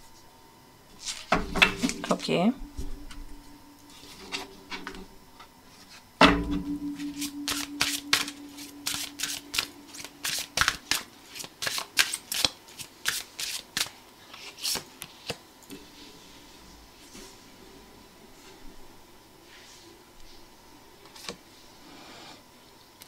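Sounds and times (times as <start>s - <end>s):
cards being shuffled: 1.0s - 2.0s, 7.2s - 15.4s, 21.1s - 21.4s
low ringing tone: 1.4s - 10.6s
sharp knock: 6.2s - 10.9s.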